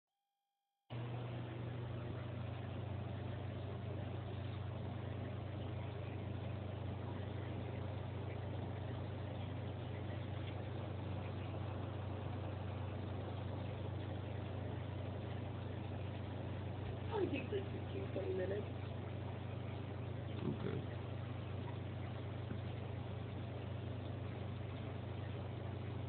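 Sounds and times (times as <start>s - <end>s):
constant hiss: 0.9s - 26.0s
low hum: 0.9s - 26.0s.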